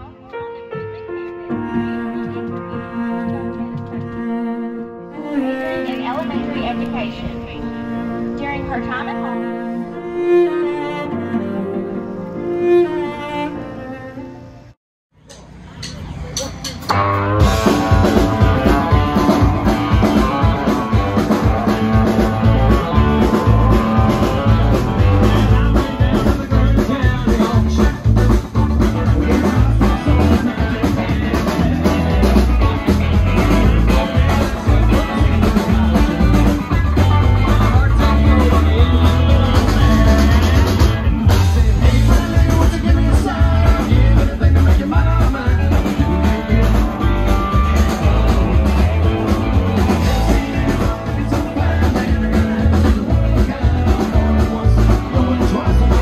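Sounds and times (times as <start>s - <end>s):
rock music with singing: 15.4s - 56.0s.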